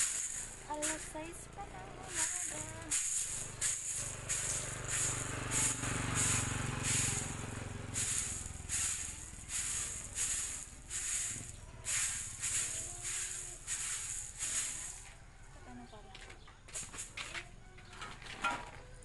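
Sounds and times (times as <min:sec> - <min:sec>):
broom sweeping concrete floor: 0:00.0 - 0:01.3, 0:02.1 - 0:15.2, 0:16.7 - 0:17.4
corn kernels rattling: 0:00.0 - 0:01.3, 0:02.1 - 0:15.2, 0:16.7 - 0:18.7.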